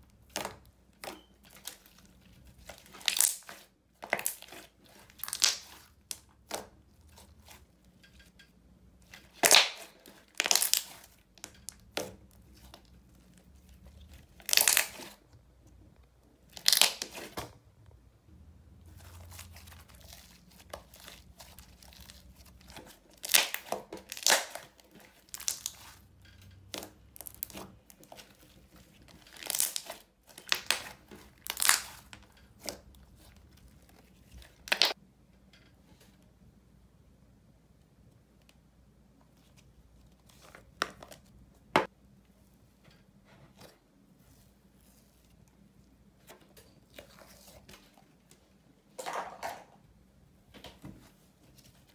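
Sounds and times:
slime squelching by hand: 18.7 - 35.0.

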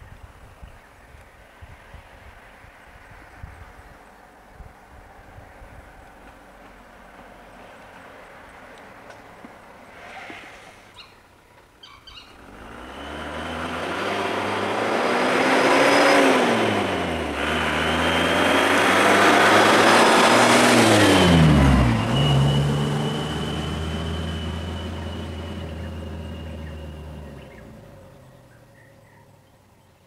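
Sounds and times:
truck engine revving and passing: 12.1 - 28.8.

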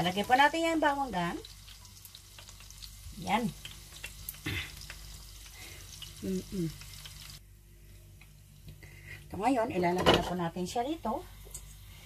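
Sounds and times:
food sizzling in a pan: 0.0 - 7.4.

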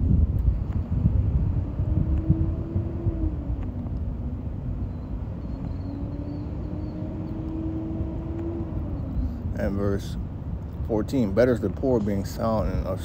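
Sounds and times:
humming tone: 0.0 - 9.5
vehicle engine rumble: 0.0 - 13.0.

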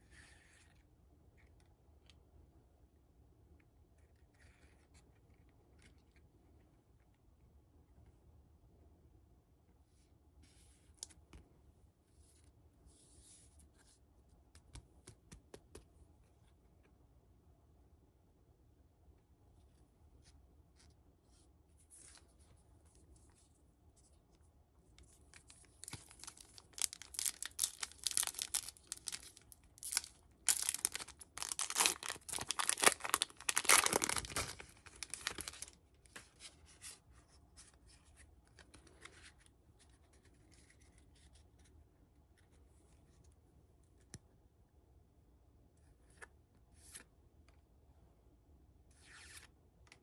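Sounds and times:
foil wrapper crinkling and tearing: 25.8 - 35.8.

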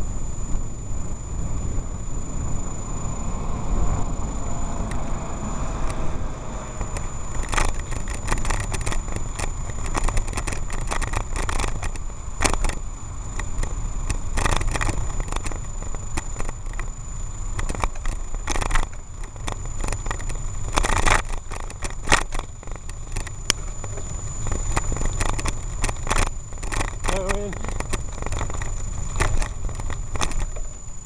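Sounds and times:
wind rumbling on microphone: 0.0 - 31.0
bike clicks and rattles: 6.7 - 31.0.

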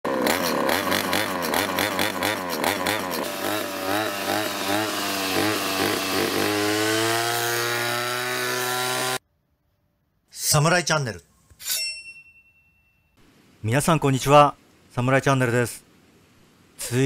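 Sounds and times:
brush cutter engine cutting grass: 0.1 - 9.2.

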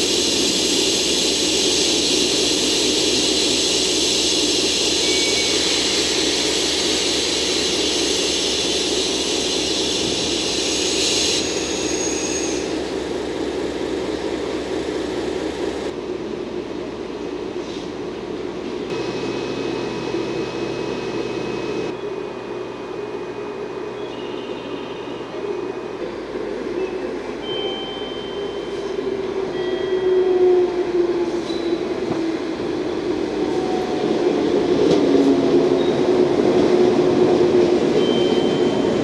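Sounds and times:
locomotive engine idling: 18.9 - 21.9.

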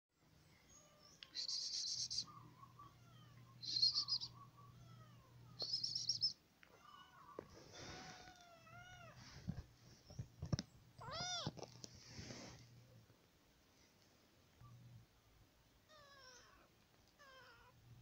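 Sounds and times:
high bird chirps: 3.6 - 4.5, 5.6 - 6.4.

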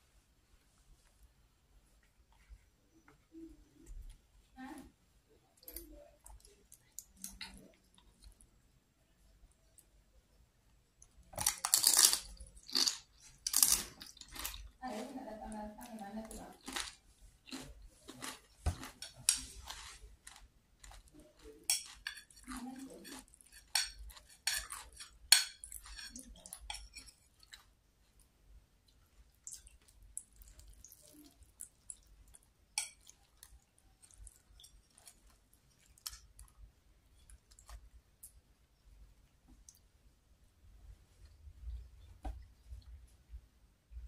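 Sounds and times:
metal spoon clinking on a plate: 21.7 - 22.4.

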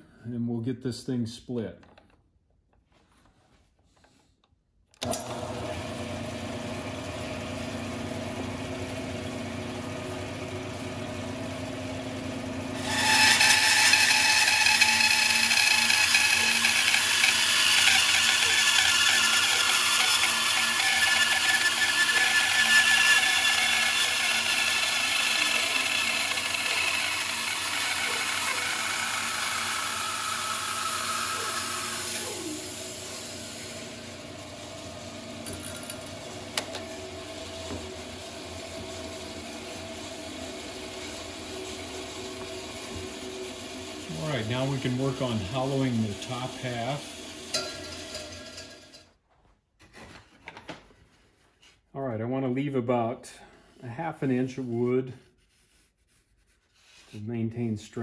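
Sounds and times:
bandsaw running: 5.0 - 49.0
bandsaw cutting wood: 12.7 - 35.2, 36.4 - 49.0.

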